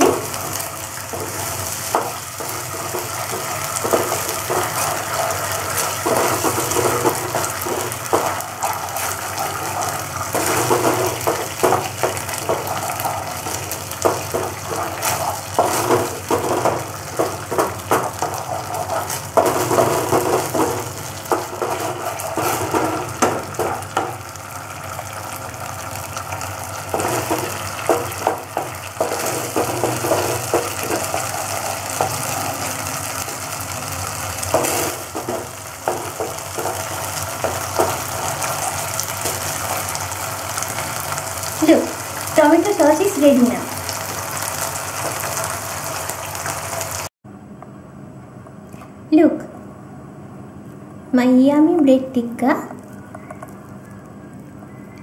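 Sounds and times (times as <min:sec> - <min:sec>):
spatula scraping pan: 0:00.0 - 0:24.2, 0:26.9 - 0:46.6
spatula tapping pan: 0:00.0 - 0:24.3, 0:26.8 - 0:33.4, 0:34.4 - 0:45.6
sauce sizzling in frying pan: 0:00.0 - 0:47.1.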